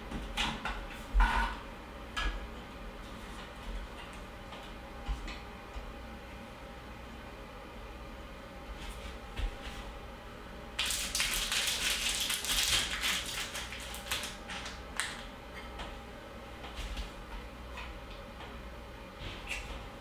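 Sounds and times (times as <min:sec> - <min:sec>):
plastic crinkling and rustling: 0:10.8 - 0:15.3.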